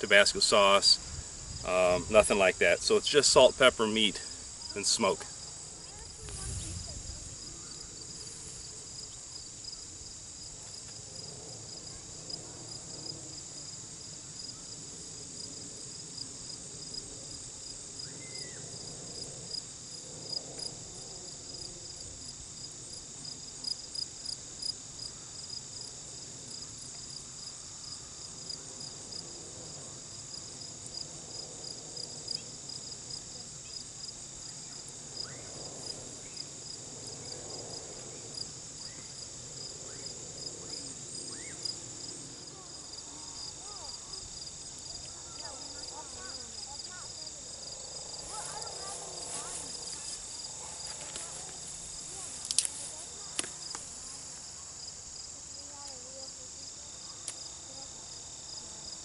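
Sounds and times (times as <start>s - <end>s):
high insect hiss: 0.0s - 59.0s
insects trilling: 0.0s - 59.0s.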